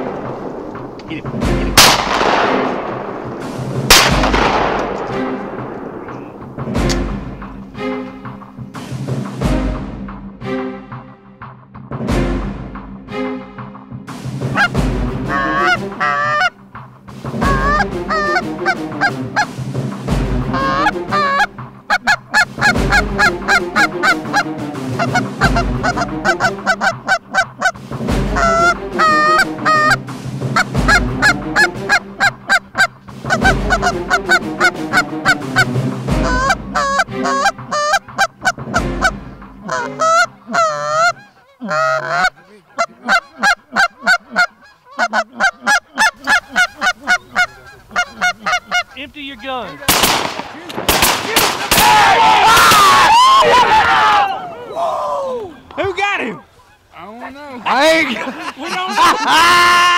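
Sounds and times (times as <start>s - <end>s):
music with deep drum beat: 0.0s - 40.2s
geese honking: 14.4s - 59.9s.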